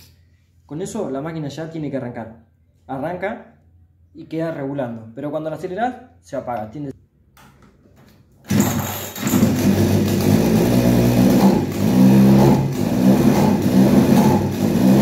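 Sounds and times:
chainsaw engine starting and idling: 8.4 - 15.0.

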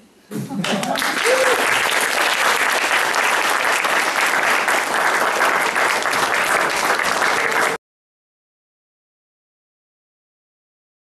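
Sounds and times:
audience applauding: 0.6 - 7.8.

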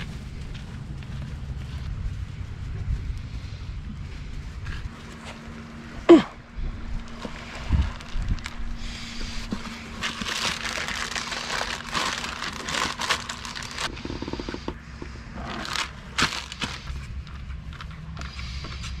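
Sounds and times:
plastic sheeting crinkling: 7.0 - 13.9, 15.5 - 18.1
plastic sheeting snapping: 9.9 - 13.9, 15.6 - 16.9.

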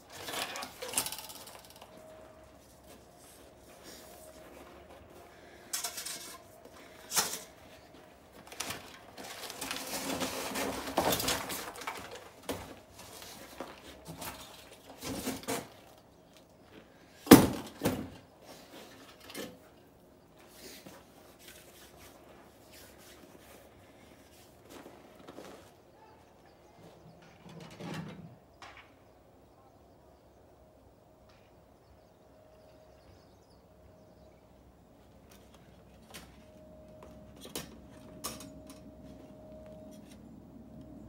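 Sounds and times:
scraping and rustling: 0.0 - 16.0.

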